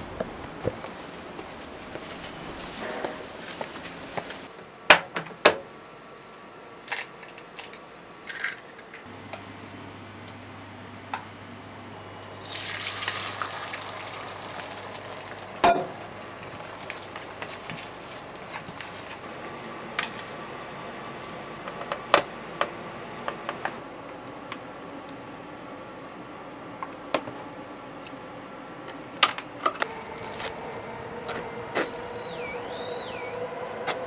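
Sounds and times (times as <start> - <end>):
egg sizzling in a pan: 12.2 - 21.4.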